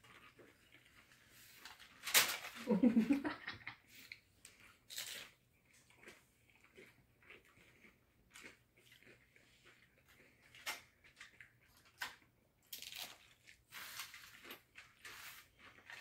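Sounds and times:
chips crunching: 0:04.5 - 0:16.0.

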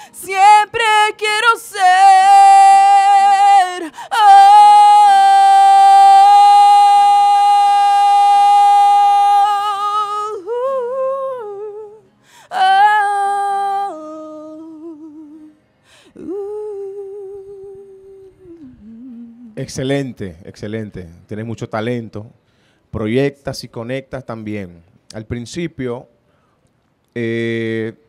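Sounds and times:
woman singing: 0:00.0 - 0:19.6
woman humming softly: 0:16.2 - 0:19.6.

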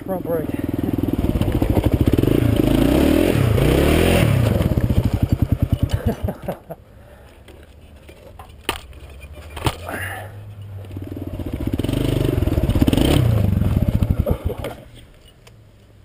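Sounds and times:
motorcycle engine revving and stalling: 0:00.6 - 0:06.6, 0:08.8 - 0:15.0
motorcycle crashing: 0:01.0 - 0:06.7, 0:08.0 - 0:15.0.

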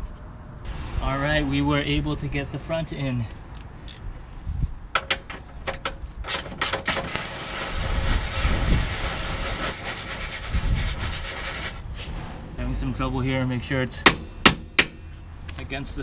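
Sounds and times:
metal clicks and knocks: 0:04.9 - 0:07.0.

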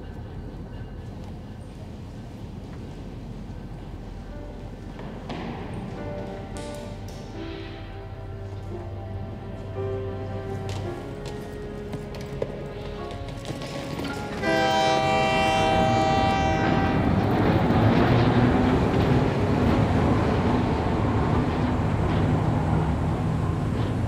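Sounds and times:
train rumbling on track: 0:00.0 - 0:24.0
train horn: 0:14.0 - 0:17.3.

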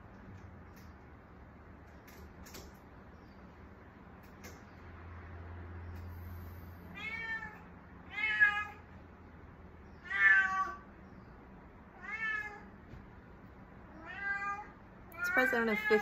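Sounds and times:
cat meowing: 0:06.9 - 0:08.9, 0:10.0 - 0:10.9, 0:11.9 - 0:12.7, 0:13.8 - 0:16.0.

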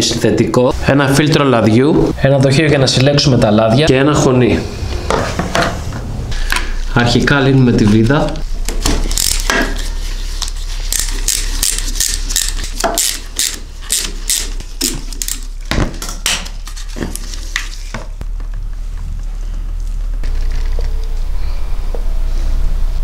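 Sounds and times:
ratchet clicking: 0:09.0 - 0:09.6, 0:10.9 - 0:15.5.

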